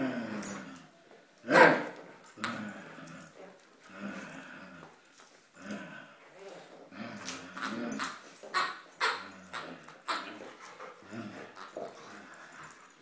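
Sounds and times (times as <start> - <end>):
dog making play noises: 6.5 - 13.0.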